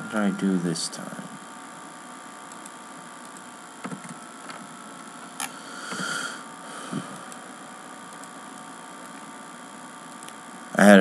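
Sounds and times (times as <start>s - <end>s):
electrical hum and hiss: 0.0s - 11.0s
computer mouse clicks: 2.5s - 4.6s, 8.1s - 9.2s, 10.1s - 10.4s.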